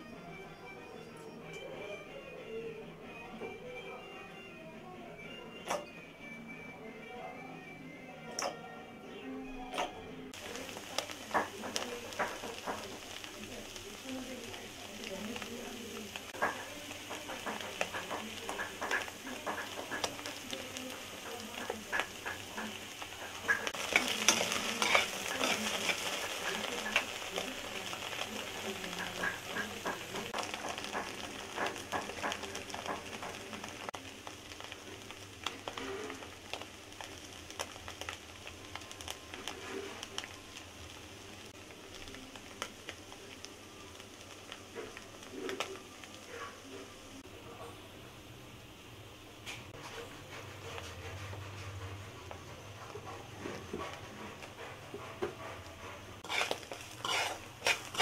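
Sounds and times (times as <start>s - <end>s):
crackling pops of frying: 5.6s - 5.9s, 9.7s - 47.3s, 56.2s - 58.0s
food sizzling in hot oil: 10.3s - 47.4s, 56.1s - 58.0s.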